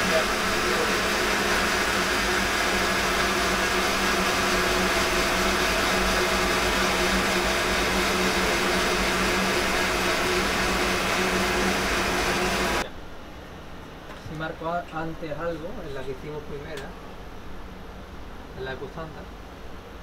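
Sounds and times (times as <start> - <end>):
machine whir: 0.0 - 12.9.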